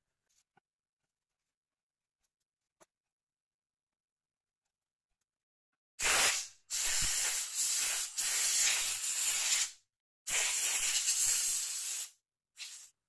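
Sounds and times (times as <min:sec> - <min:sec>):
aerosol spray can hissing: 0:06.0 - 0:12.9.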